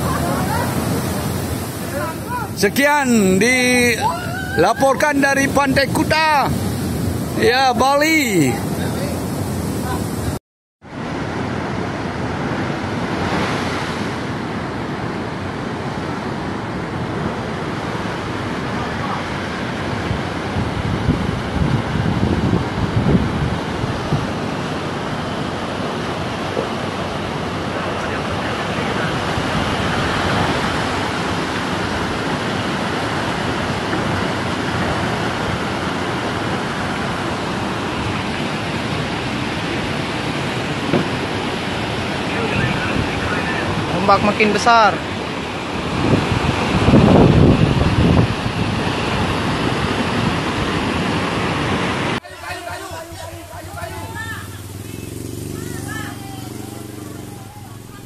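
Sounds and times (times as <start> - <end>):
wind buffeting microphone: 0.0 - 10.4, 19.4 - 44.1, 45.2 - 58.0
waves rushing over seawall: 0.0 - 58.0.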